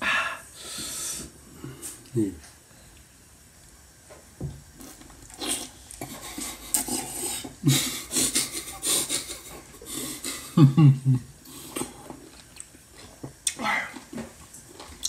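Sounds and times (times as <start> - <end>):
man chewing with smacking noises: 4.8 - 10.5, 11.4 - 15.0.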